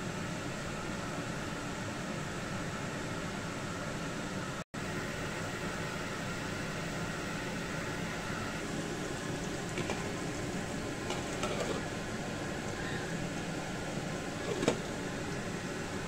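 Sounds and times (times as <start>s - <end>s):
chicken sizzling in hot oil: 4.8s - 16.0s.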